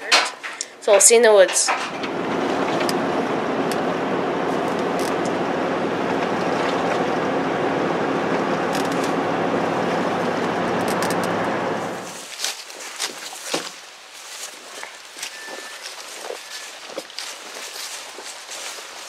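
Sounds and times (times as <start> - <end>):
engine hum: 1.4 - 12.3.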